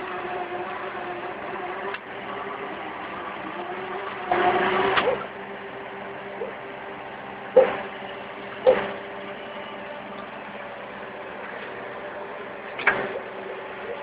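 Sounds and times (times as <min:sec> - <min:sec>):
loader engine running: 0:00.0 - 0:14.0.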